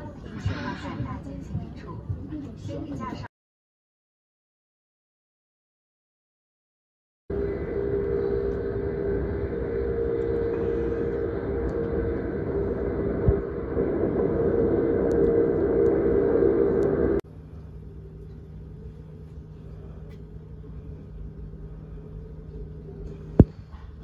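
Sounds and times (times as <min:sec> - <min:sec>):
train cabin rumble: 0:07.3 - 0:17.2
train cabin hum: 0:07.3 - 0:24.0.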